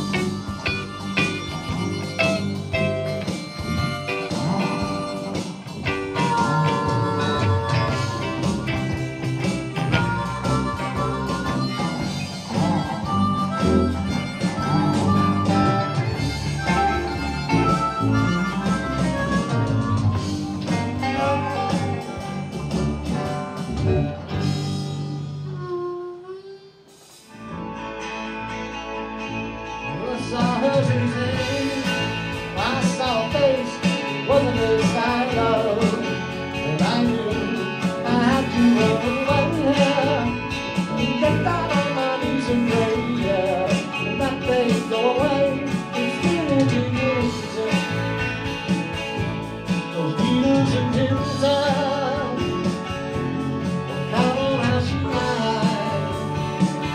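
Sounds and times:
harmonica and guitar music: 0:00.0 - 0:56.9
live band guitars: 0:00.0 - 0:56.9
man singing: 0:03.6 - 0:19.6, 0:20.6 - 0:22.8, 0:29.8 - 0:48.6, 0:49.7 - 0:56.9.

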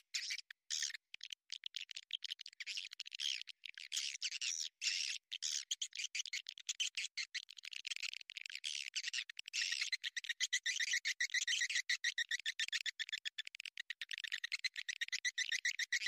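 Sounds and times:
swiftlets twittering and chirping: 0:14.2 - 0:16.0.

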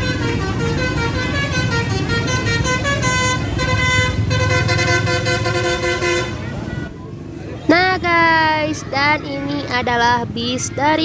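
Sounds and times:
multi-trumpet bus horn melody: 0:00.0 - 0:06.9
bus engine rumble: 0:00.0 - 0:11.0.

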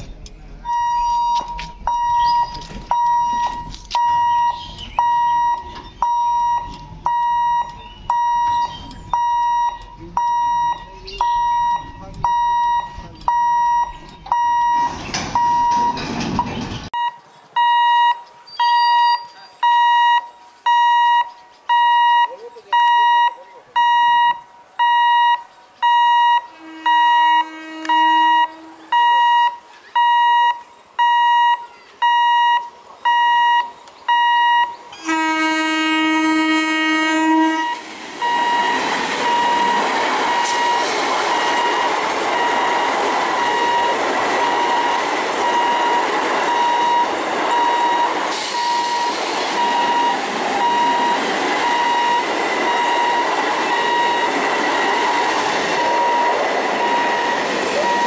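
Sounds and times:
level crossing alarm beeping: 0:00.6 - 0:35.4, 0:37.2 - 0:58.0
train horn: 0:26.4 - 0:29.0, 0:34.9 - 0:37.8
train wheels rushing on rail: 0:35.8 - 0:58.0.

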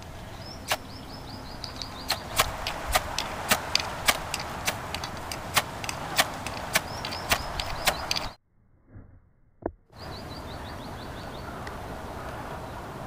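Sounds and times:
fire-starter rod scrapes: 0:01.7 - 0:08.4.

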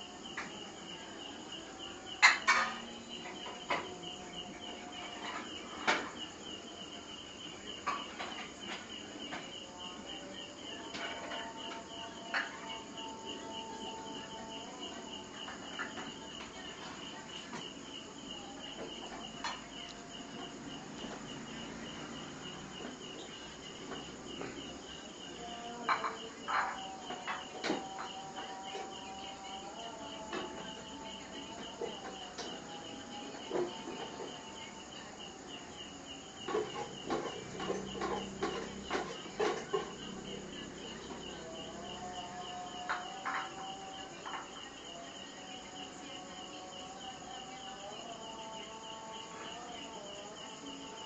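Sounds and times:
insect chirping: 0:00.0 - 0:51.0.

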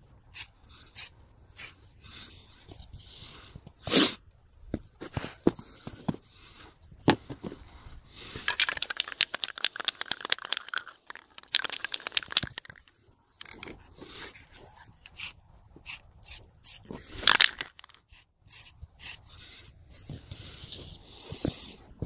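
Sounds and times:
crinkling handling noise: 0:07.0 - 0:15.2, 0:16.9 - 0:18.1.

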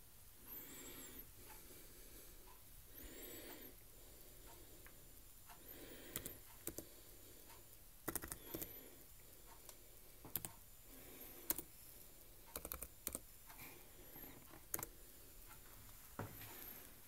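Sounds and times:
laptop keyboard typing: 0:06.0 - 0:07.0, 0:08.0 - 0:09.0, 0:09.7 - 0:10.6, 0:11.2 - 0:11.7, 0:12.5 - 0:13.3, 0:14.2 - 0:15.0.

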